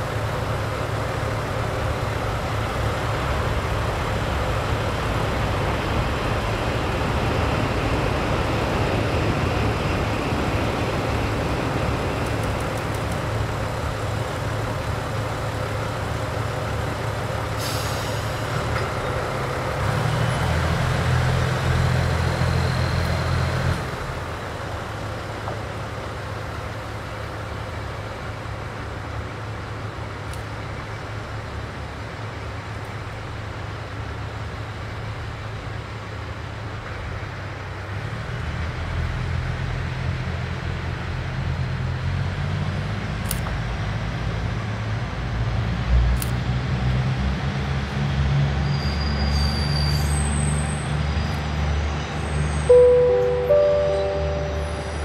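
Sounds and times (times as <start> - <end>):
diesel engines idling: 0.0 - 45.4, 51.8 - 55.0
air hiss: 17.5 - 18.5
low hum: 52.7 - 55.0.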